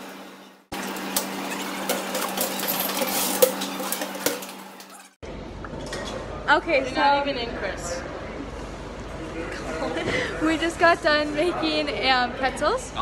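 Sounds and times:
bakery machinery humming: 0:00.0 - 0:05.5.

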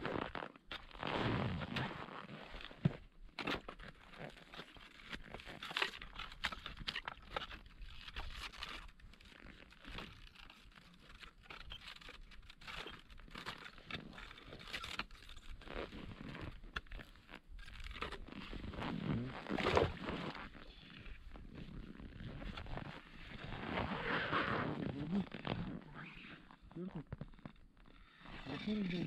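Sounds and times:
ice and snow crunching: 0:00.0 - 0:26.6
tool scraping ice: 0:00.8 - 0:20.6, 0:28.3 - 0:29.0.

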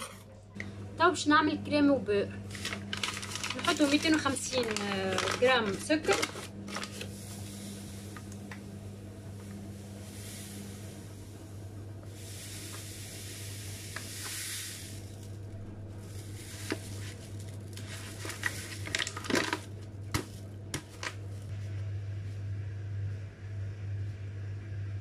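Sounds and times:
steady low hum: 0:00.0 - 0:25.0
paper bag crackling: 0:02.4 - 0:08.4, 0:16.0 - 0:20.3
sugar pouring into a saucepan: 0:02.5 - 0:15.3, 0:16.0 - 0:19.7.

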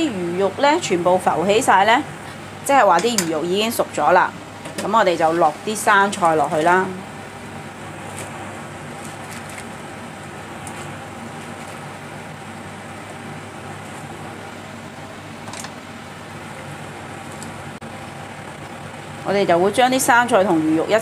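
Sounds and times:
soup boiling in a pan: 0:07.0 - 0:19.5.

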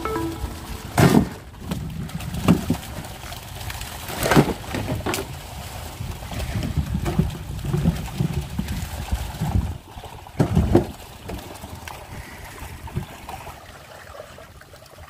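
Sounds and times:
knocks in a wooden boat: 0:10.4 - 0:10.9.

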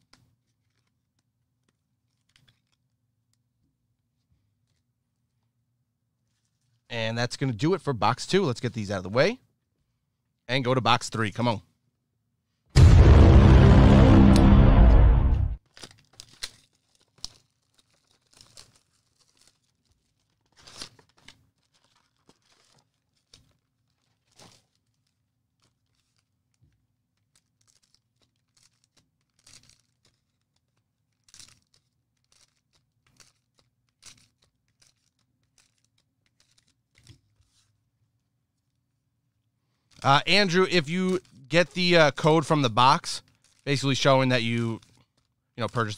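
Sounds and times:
packaging crinkling and tearing: 0:00.0 - 0:03.0, 0:15.6 - 0:37.8, 0:39.8 - 0:45.9.

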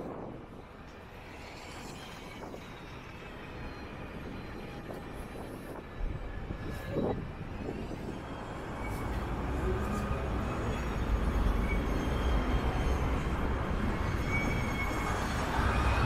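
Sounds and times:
wind buffeting the microphone: 0:00.0 - 0:00.8, 0:03.8 - 0:10.6
city street traffic: 0:00.0 - 0:16.0.

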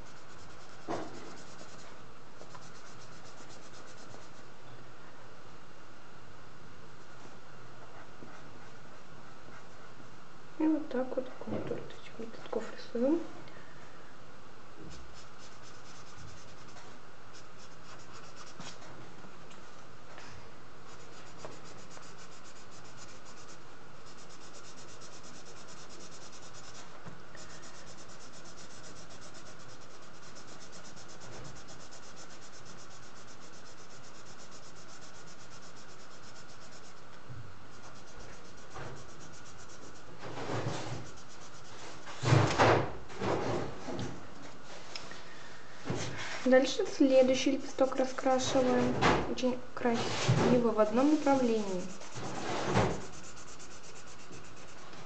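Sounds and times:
marker rubbing on paper: 0:00.0 - 0:04.4, 0:14.9 - 0:18.8, 0:20.9 - 0:37.1, 0:37.7 - 0:41.8, 0:50.6 - 0:55.0
knocks and rustles: 0:00.8 - 0:01.4, 0:40.2 - 0:41.1, 0:41.8 - 0:44.5, 0:50.0 - 0:50.6, 0:52.2 - 0:53.1.

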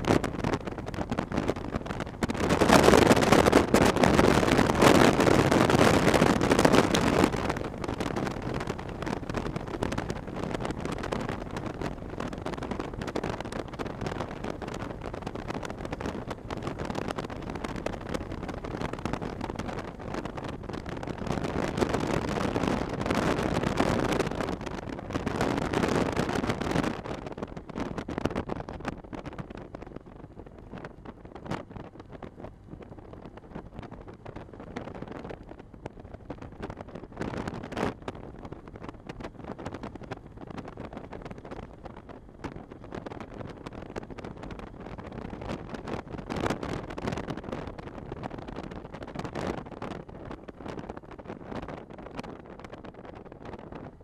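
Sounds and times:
motorcycle road noise: 0:00.0 - 0:54.0
wind rushing over microphone: 0:00.0 - 0:54.0.

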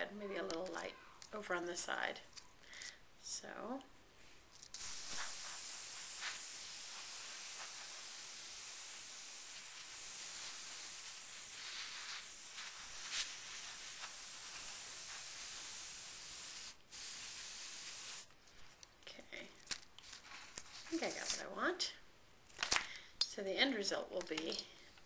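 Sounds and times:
airbrush hissing: 0:04.7 - 0:18.3.

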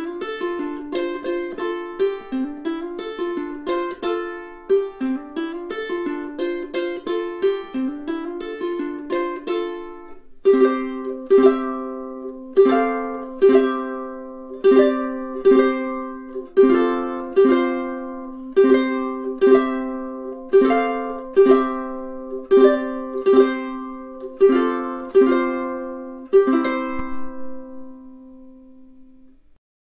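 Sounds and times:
ukulele playing: 0:00.0 - 0:29.6.

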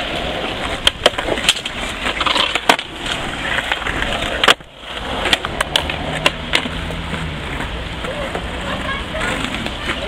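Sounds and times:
skateboard clacking: 0:00.0 - 0:10.0
skateboard wheels rolling on concrete: 0:00.0 - 0:10.0.

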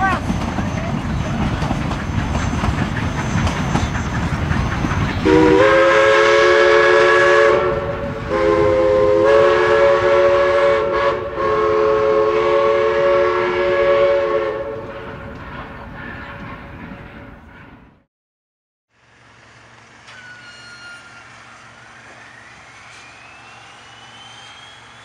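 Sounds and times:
train rumble and clatter: 0:00.0 - 0:18.1
chime steam whistle: 0:05.2 - 0:15.3, 0:20.0 - 0:25.0.

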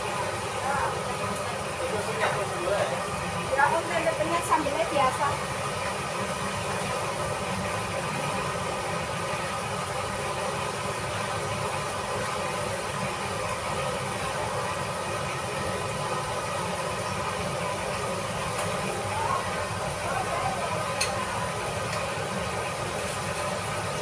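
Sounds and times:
cooking hissing on stove: 0:00.0 - 0:24.0.

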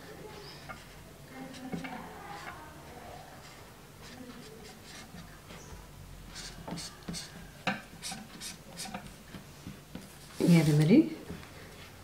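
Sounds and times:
marker pen scratching on paper: 0:00.3 - 0:05.7, 0:06.3 - 0:07.4, 0:08.0 - 0:09.4.

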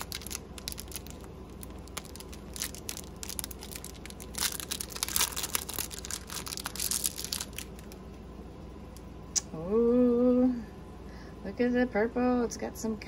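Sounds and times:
plastic bag crinkling: 0:00.0 - 0:08.0.

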